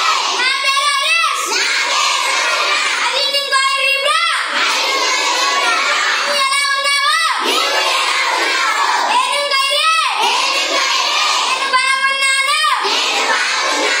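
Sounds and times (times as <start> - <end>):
children singing in unison: 0.0 - 0.5, 1.3 - 3.2, 4.4 - 6.4, 7.4 - 9.2, 10.1 - 14.0.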